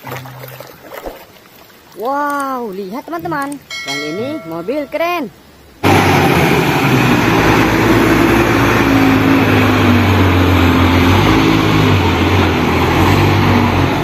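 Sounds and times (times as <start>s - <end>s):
road noise: 0.0s - 14.0s
diesel engine running: 5.8s - 14.0s.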